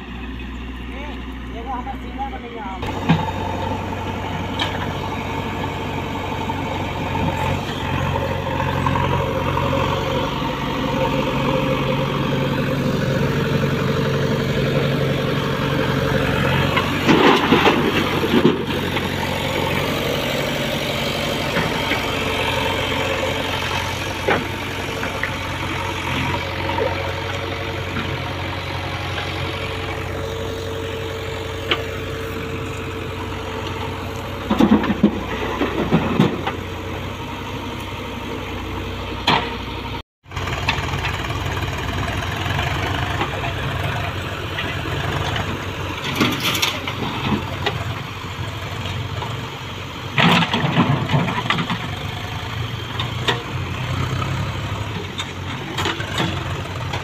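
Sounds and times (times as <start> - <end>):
diesel engines running: 0.0 - 57.0.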